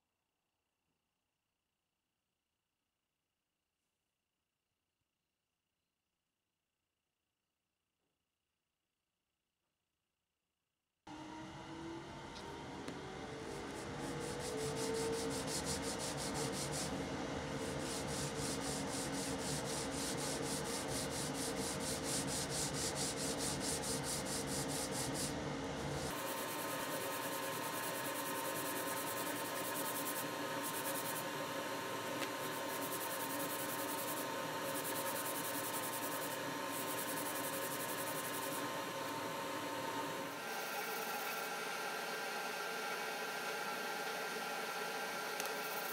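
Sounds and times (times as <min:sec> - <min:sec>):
steady hum: 0:11.1 - 0:41.6
ruler scratching sandpaper: 0:13.6 - 0:17.0, 0:17.6 - 0:26.1.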